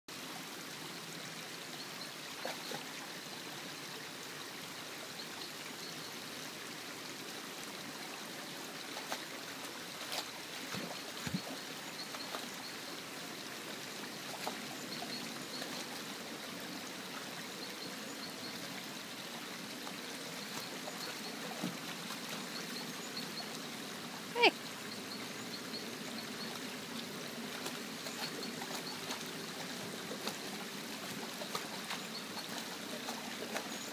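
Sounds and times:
stream water running: 0.1s - 33.9s
small splashes and knocks: 8.9s - 12.5s, 19.8s - 22.6s.

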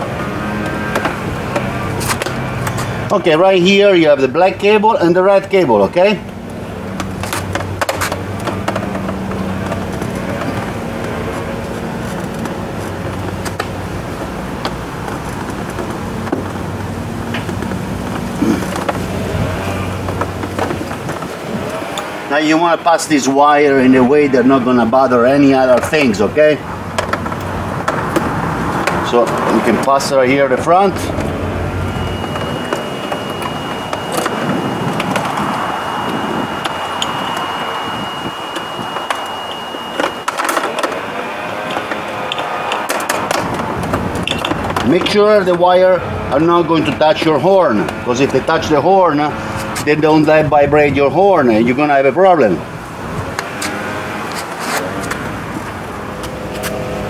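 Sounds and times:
motor drone with low hum: 5.9s - 51.5s
thin steady high tone: 29.1s - 43.4s.

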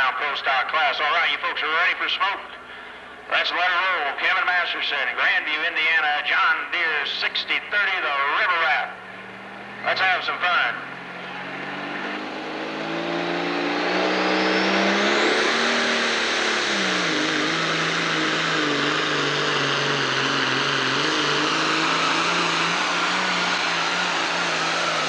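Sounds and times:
diesel tractor engine at full power: 2.5s - 3.3s, 8.9s - 25.0s
high whine: 6.6s - 25.0s.

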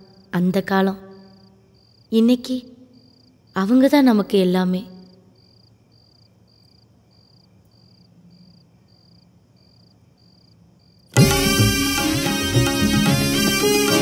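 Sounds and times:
faint low hum: 0.0s - 11.1s
cricket chirping: 0.0s - 11.2s
traditional music with drums: 11.2s - 14.0s.

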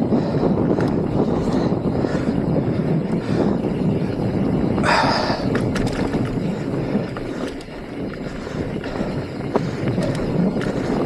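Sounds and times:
tyres and wind rushing: 0.0s - 11.0s
bike rattling over rocks: 2.9s - 11.0s.

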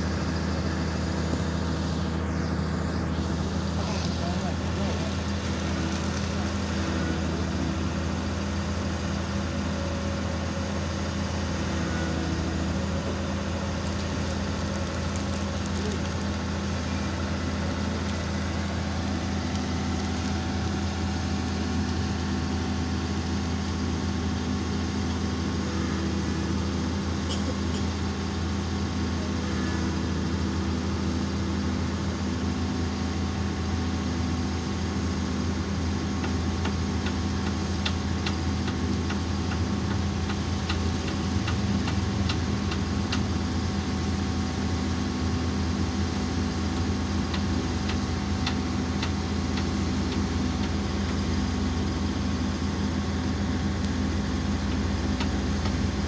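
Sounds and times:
heavy machine engine idling: 0.0s - 56.0s.

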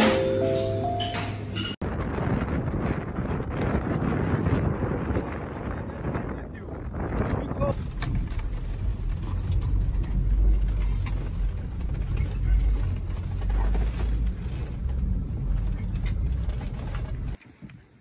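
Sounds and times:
engine and tyres rumbling: 0.0s - 18.0s
cabin rattling and creaking: 7.7s - 17.4s.

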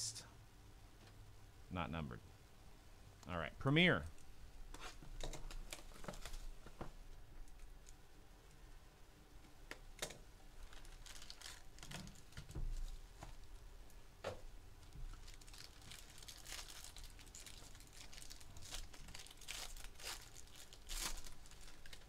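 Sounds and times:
foil wrapper crinkling and tearing: 4.8s - 6.6s, 10.6s - 13.0s, 14.9s - 22.0s.

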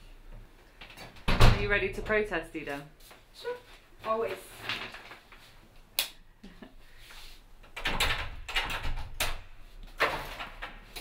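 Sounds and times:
door lock knocks and clicks: 7.7s - 9.4s.

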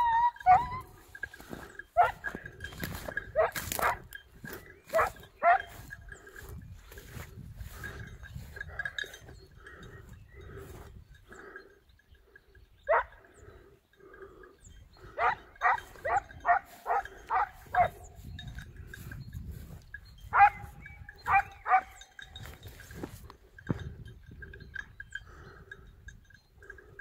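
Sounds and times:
hound baying barks: 0.0s - 1.0s, 1.9s - 2.4s, 3.3s - 4.1s, 4.8s - 5.9s, 12.9s - 13.2s, 15.1s - 18.2s, 20.3s - 22.1s.

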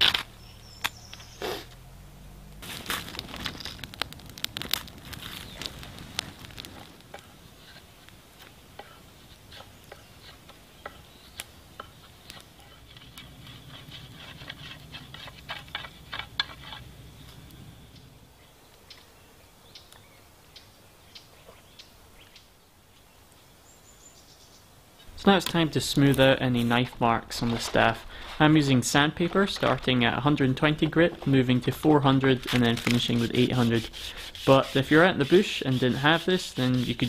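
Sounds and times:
twig fire crackling: 0.0s - 19.1s, 24.9s - 37.0s
knife scraping wood: 8.8s - 17.0s, 32.3s - 37.0s.

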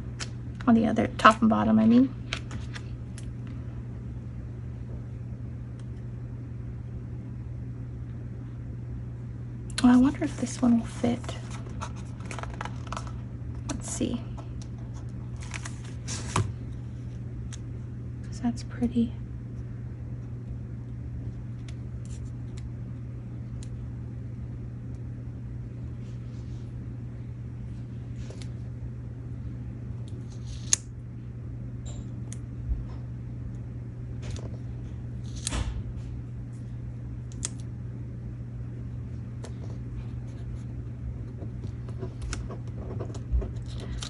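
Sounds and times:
steady low hum: 0.0s - 44.0s
paper stickers rustling and clicking: 9.8s - 13.9s, 14.8s - 16.5s.

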